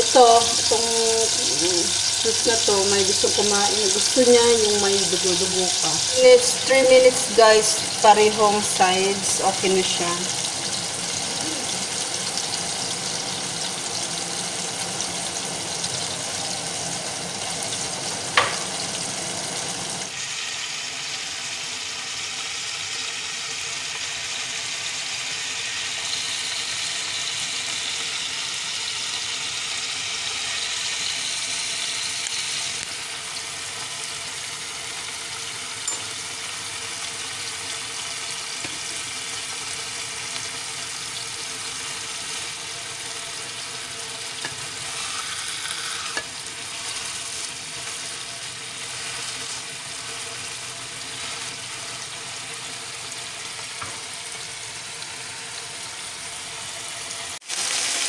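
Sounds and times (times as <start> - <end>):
steak sizzling in frying pan: 0.0 - 58.0.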